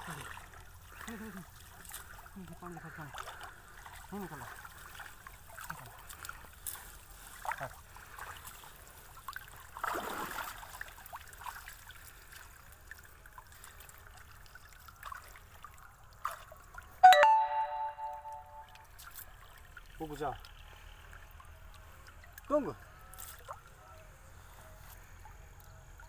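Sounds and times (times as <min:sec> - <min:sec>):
bell-like chime: 0:17.0 - 0:18.8.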